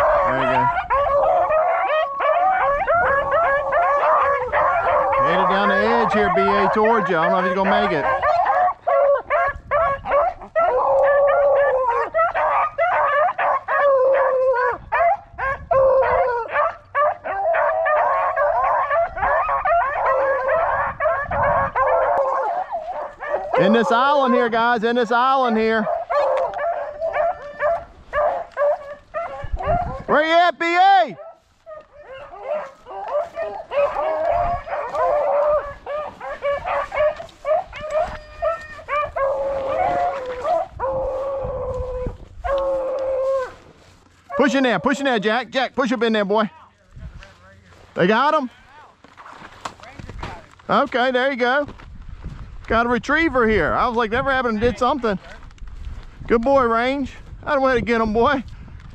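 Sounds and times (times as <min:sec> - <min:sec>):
dogs baying: 0:00.0 - 0:30.2, 0:31.1 - 0:45.5
hounds howling: 0:00.0 - 0:30.2, 0:31.0 - 0:45.4
hounds barking and yelping: 0:00.0 - 0:45.5.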